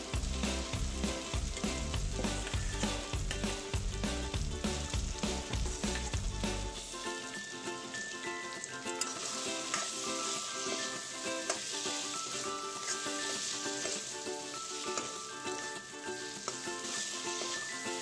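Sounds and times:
food sizzling in hot oil: 0.0 - 18.0
soft background music: 0.0 - 18.0
metal spatula scraping pan: 9.0 - 10.9, 11.5 - 15.8.

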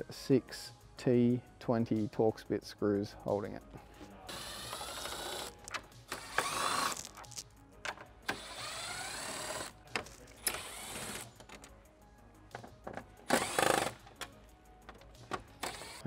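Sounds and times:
cordless drill motor whining: 4.3 - 5.5, 6.2 - 7.0, 8.3 - 9.7, 10.4 - 11.3, 13.3 - 14.0, 15.6 - 16.0.

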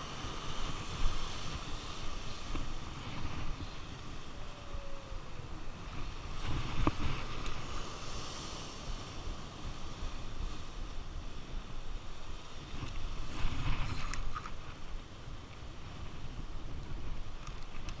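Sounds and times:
sea surf: 0.0 - 18.0
wind rumbling on microphone: 0.0 - 18.0.

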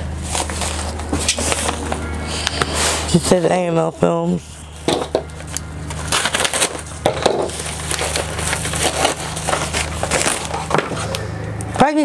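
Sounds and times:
padded mailer crinkling and tearing: 0.2 - 3.1, 5.3 - 11.2.

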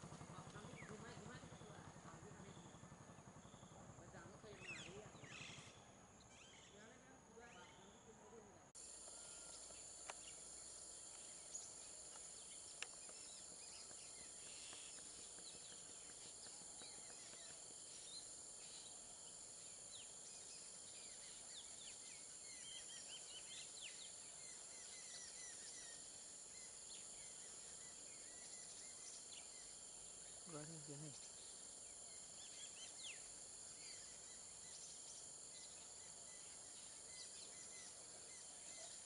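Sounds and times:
high-pitched insect drone: 8.8 - 39.0.

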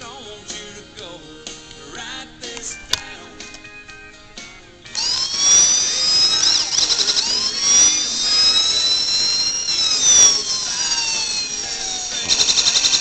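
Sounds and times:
electronic police siren wailing: 5.0 - 13.0.

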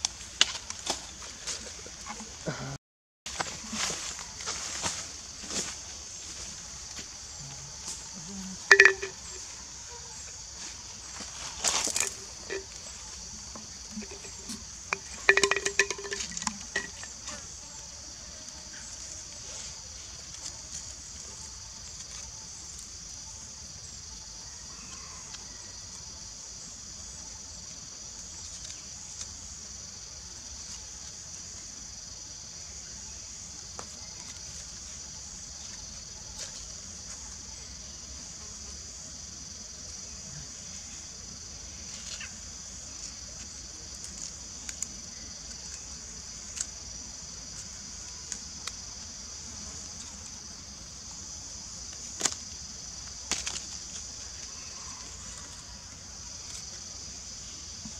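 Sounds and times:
insects buzzing: 0.0 - 57.9.

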